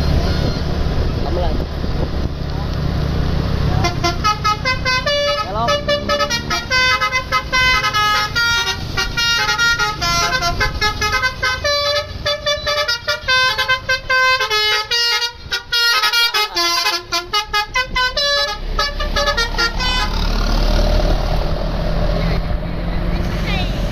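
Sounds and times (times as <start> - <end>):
multi-tone bus horn tune: 0.0 - 0.9, 3.7 - 20.8
engine and road rumble: 0.0 - 23.9.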